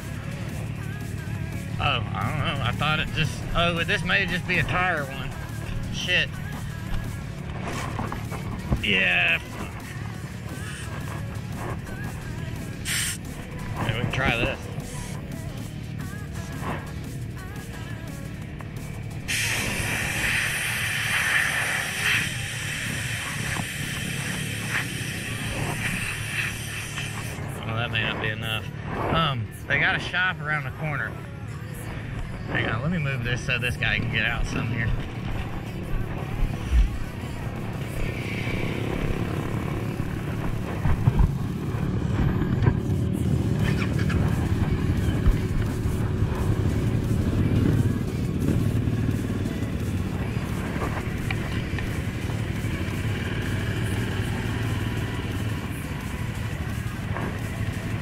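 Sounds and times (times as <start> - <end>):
atv engine humming: 0.0 - 58.0
loud steady hiss: 19.3 - 27.4.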